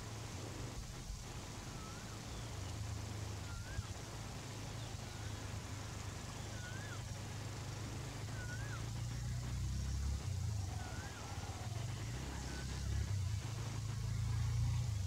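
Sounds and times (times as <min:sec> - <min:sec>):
low steady hum: 0:00.0 - 0:15.0
bird whistling: 0:03.4 - 0:04.0, 0:08.2 - 0:09.0.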